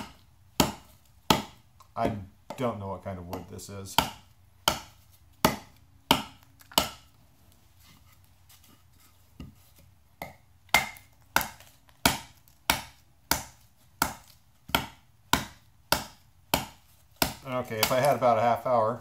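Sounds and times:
knife chopping into wooden log: 3.3 - 7.1, 10.2 - 18.2.

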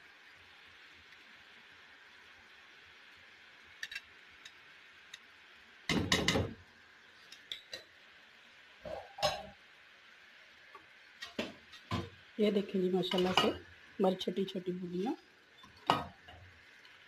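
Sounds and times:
batter sizzling in hot oil: 0.0 - 17.0
metal spoon knocking on pan: 5.9 - 6.6.

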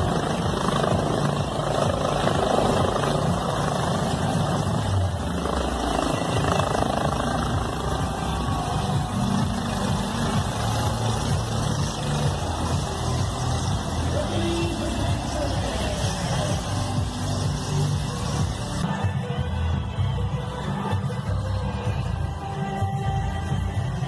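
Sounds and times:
low pulsing blade beat: 0.0 - 18.8
helicopter rotor and turbine: 0.0 - 18.9.

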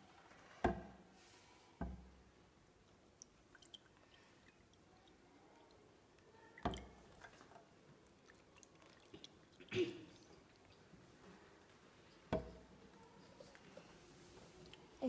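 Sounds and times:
water trickling into a glass: 3.2 - 5.8, 6.4 - 10.9.

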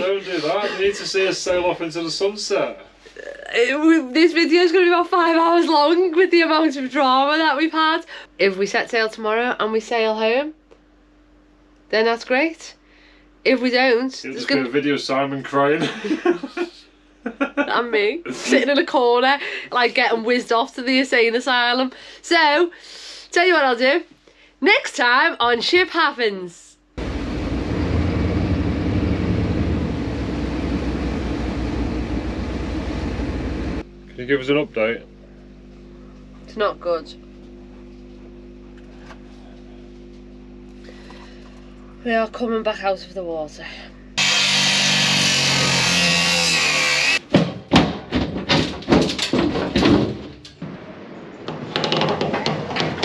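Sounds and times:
angle grinder whining: 27.0 - 33.8, 44.2 - 47.2
boat diesel engines rumbling: 27.0 - 33.8
heavy knocks and bangs: 47.3 - 53.0.

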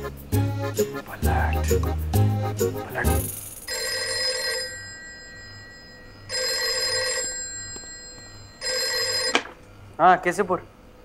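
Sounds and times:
desk telephone ringing: 3.7 - 9.6.

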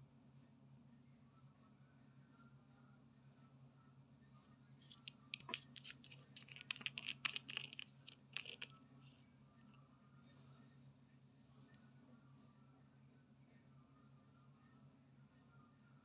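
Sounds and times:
plastic screw cap clicking: 4.9 - 8.7.

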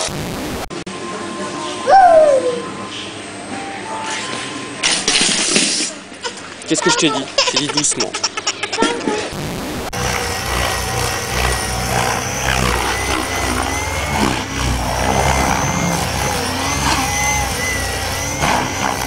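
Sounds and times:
model helicopter whine: 9.9 - 19.0.

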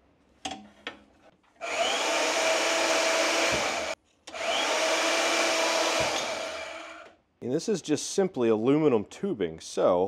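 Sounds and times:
electric shop tool motor whirring: 1.6 - 7.1.

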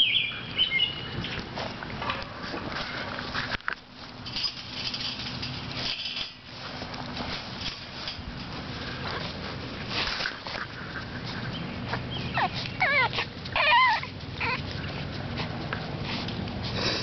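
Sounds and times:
puppy whimpering: 12.2 - 14.7.

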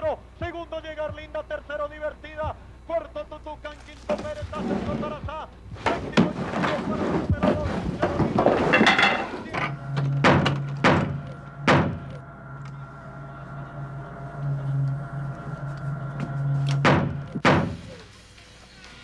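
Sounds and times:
low steady hum: 0.0 - 19.0
fist knocking on door: 10.2 - 12.0, 16.8 - 17.8.

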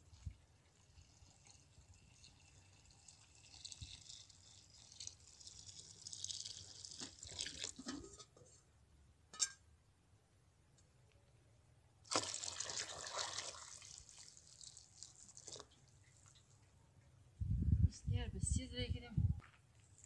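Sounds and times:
water pouring into a metal pot: 0.0 - 7.9, 12.1 - 16.4.

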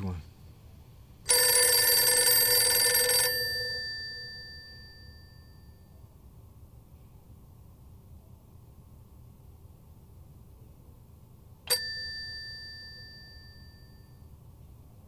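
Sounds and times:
telephone bell ringing: 1.3 - 5.9, 11.7 - 14.3.

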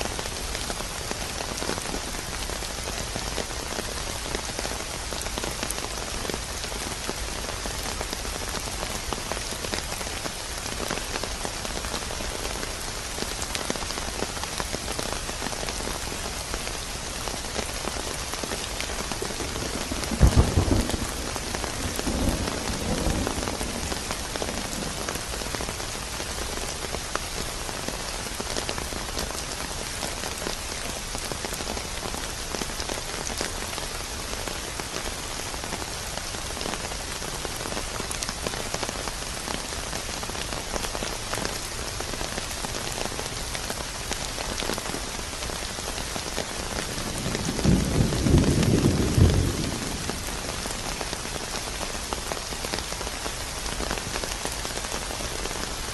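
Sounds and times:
heavy rain falling: 0.0 - 55.9
thunder rumbling: 19.6 - 25.4, 46.9 - 50.8.

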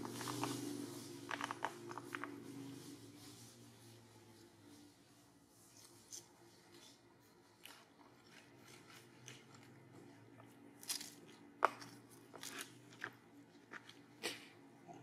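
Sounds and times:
monkeys crunching fruit: 6.1 - 15.0.

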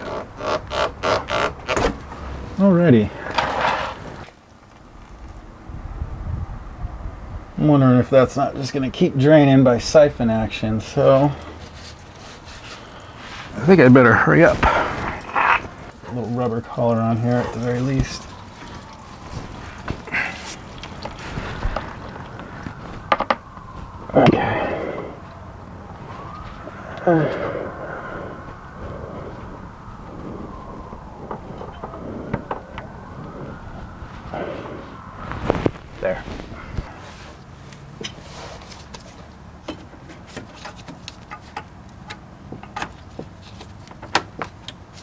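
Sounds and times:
hose squeaky scrape: 3.2 - 4.3, 11.1 - 23.1.

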